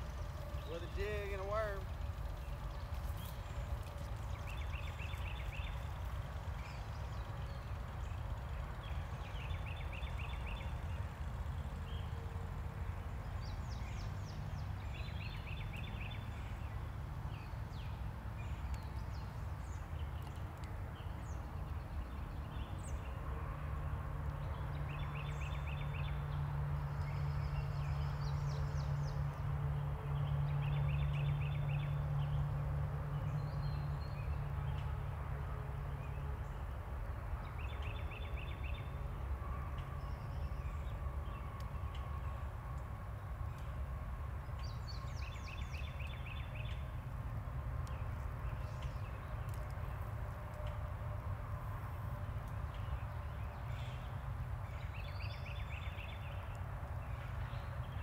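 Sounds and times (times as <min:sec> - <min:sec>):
low hum: 0:00.0 - 0:57.8.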